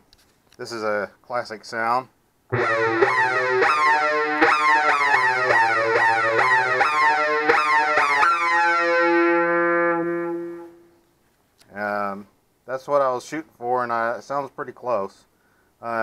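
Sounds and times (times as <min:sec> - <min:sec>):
synthesizer lead notes: 0:02.5 - 0:10.9.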